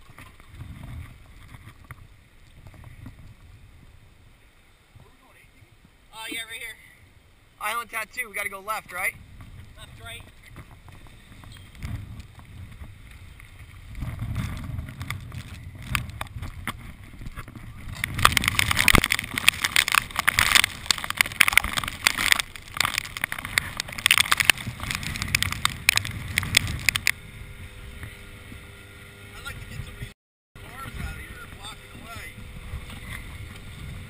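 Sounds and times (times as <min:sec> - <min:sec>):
boat motor rumble: 0:00.0 - 0:34.0
water: 0:00.0 - 0:34.0
wind: 0:00.0 - 0:34.0
rain and spray spattering: 0:18.0 - 0:27.1.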